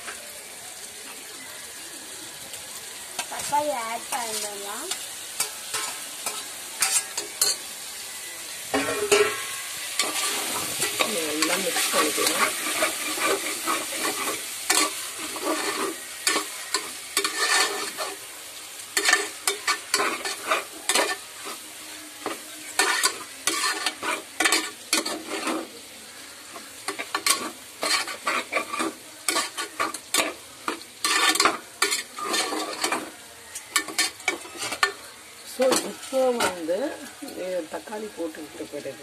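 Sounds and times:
food sizzling: 0:00.0 - 0:39.0
spoon scraping metal pot: 0:04.9 - 0:07.6, 0:08.7 - 0:18.2, 0:19.0 - 0:21.6, 0:22.2 - 0:25.7, 0:26.9 - 0:33.1, 0:33.7 - 0:35.0.

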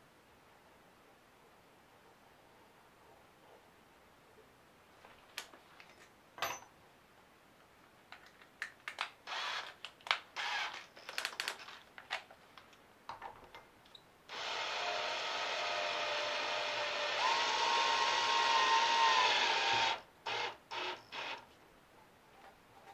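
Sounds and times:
cordless drill running: 0:09.3 - 0:09.7, 0:10.4 - 0:10.8, 0:14.3 - 0:21.4.

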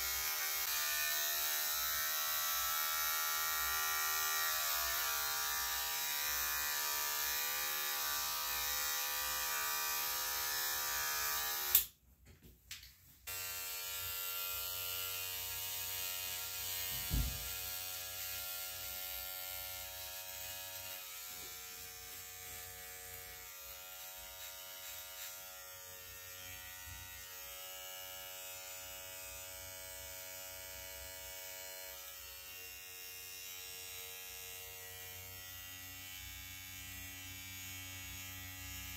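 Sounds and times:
electric hair clipper buzzing: 0:00.0 - 0:12.0, 0:13.3 - 0:38.9
low thump: 0:17.0 - 0:17.5.

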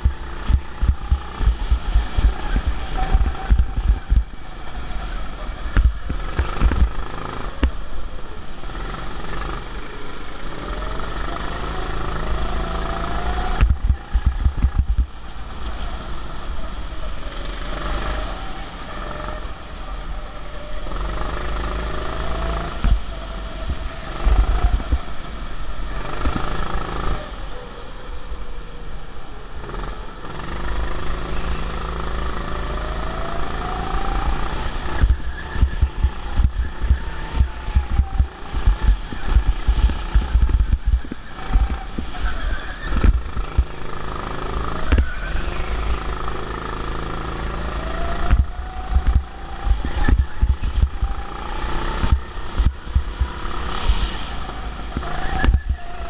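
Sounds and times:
wind buffeting microphone: 0:00.0 - 0:07.0, 0:13.5 - 0:15.3, 0:22.3 - 0:26.4, 0:33.8 - 0:43.9, 0:48.0 - 0:55.9
go-kart motor whine: 0:00.0 - 0:56.0.

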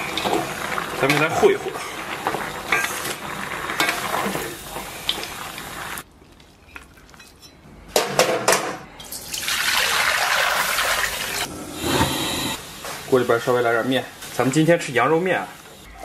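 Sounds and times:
water pouring and splashing: 0:09.1 - 0:11.5.

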